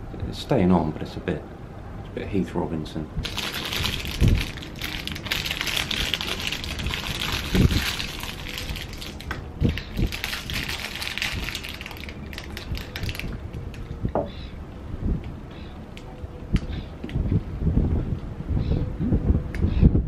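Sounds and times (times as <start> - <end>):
plastic wrapper crackling: 3.2 - 14.0.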